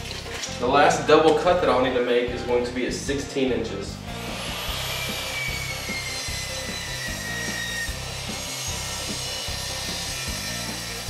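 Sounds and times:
miter saw cutting wood: 4.0s - 11.0s.

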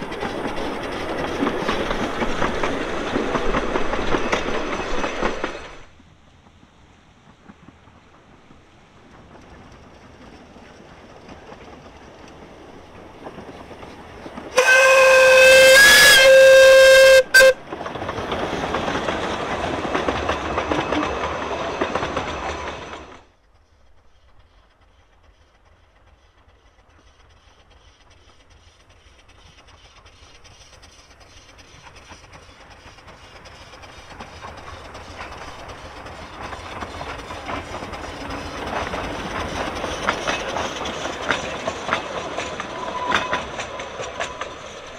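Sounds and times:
steam train running past: 0.0s - 44.9s
wheels on rails: 0.0s - 44.9s
steam whistle blast: 14.6s - 17.6s, 42.8s - 43.6s.

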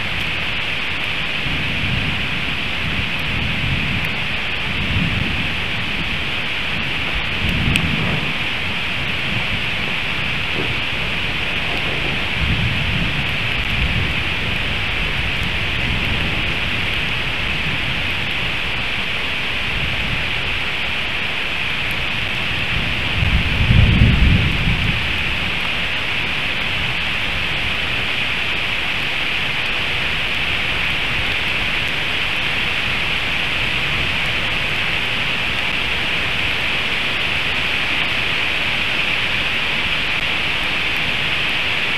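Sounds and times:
heavy rain falling: 0.0s - 41.9s
thunder rumbling: 0.0s - 41.9s.

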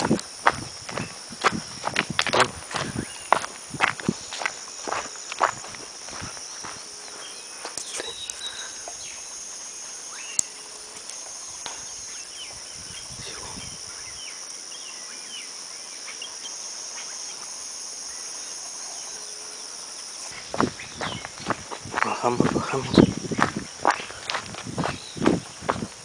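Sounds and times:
footsteps through grass: 0.0s - 8.3s, 20.2s - 26.0s
birds chirping: 0.0s - 10.6s, 11.3s - 17.4s, 20.1s - 26.0s
high insect drone: 0.0s - 26.0s.

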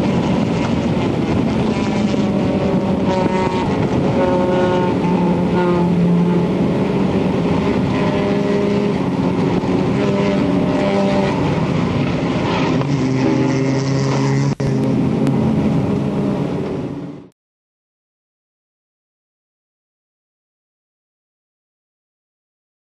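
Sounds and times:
car engine running: 0.0s - 17.3s
wind and road noise: 0.0s - 17.3s.

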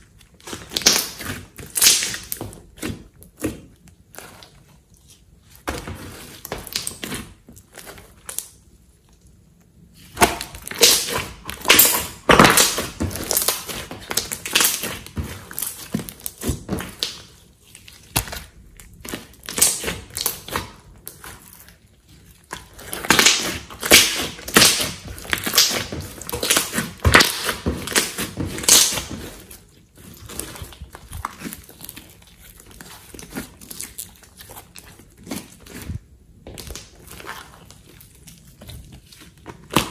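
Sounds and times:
slime squishing: 0.0s - 39.9s
slime crackling pops: 0.7s - 2.4s, 10.2s - 15.0s, 23.0s - 29.3s.

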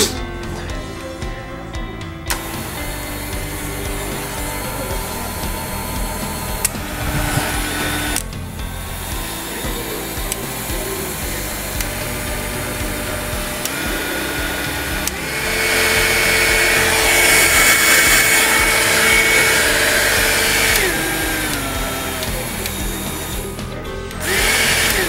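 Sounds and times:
electric hand mixer whine: 0.7s - 25.0s.

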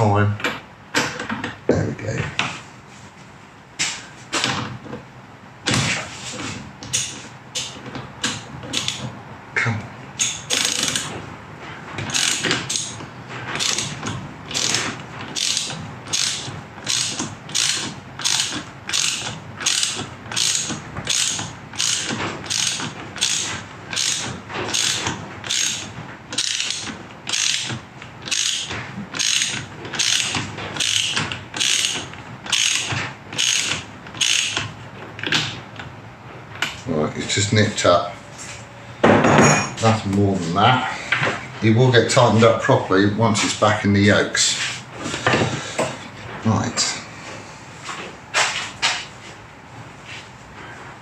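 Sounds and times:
socket ratchet clicking: 6.9s - 9.0s, 12.1s - 13.0s, 13.6s - 35.5s.

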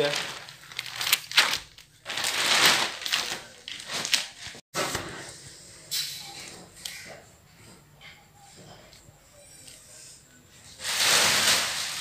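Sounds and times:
plastic wrapping crinkling: 0.0s - 4.6s, 10.8s - 12.0s.

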